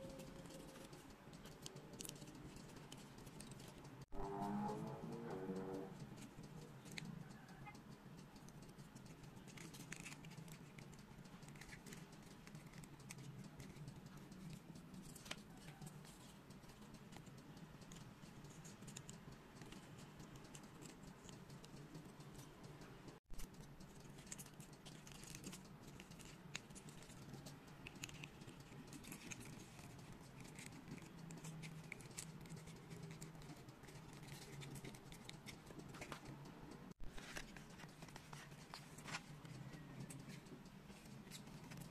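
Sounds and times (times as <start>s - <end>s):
puzzle pieces clicking and scratching: 8.5s - 17.3s, 23.2s - 36.4s.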